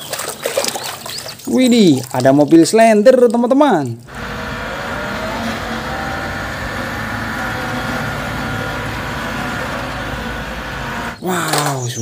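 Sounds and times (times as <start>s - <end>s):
diesel engine running: 4.1s - 11.4s.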